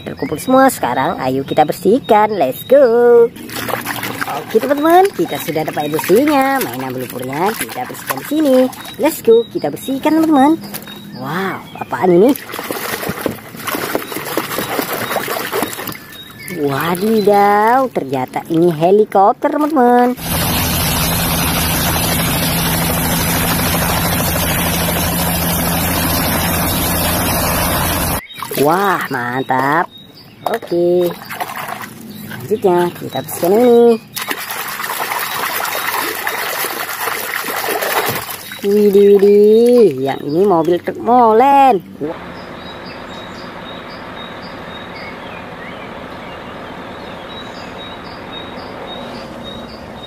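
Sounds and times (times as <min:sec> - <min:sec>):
diesel truck engine running: 0:20.2 - 0:28.2, 0:41.0 - 0:50.0
helicopter turbine and rotor: 0:20.2 - 0:28.2.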